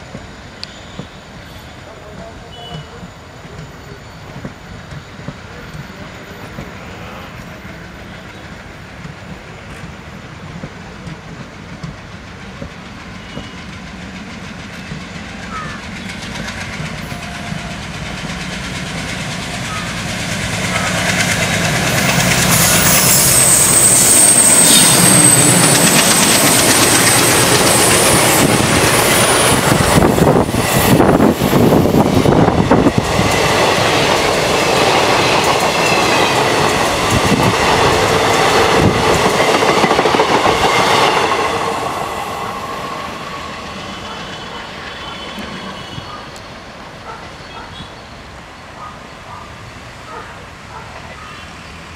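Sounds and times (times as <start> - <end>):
train wheels clacking on rails: 0.0 - 48.0
diesel locomotive engine: 0.0 - 51.9.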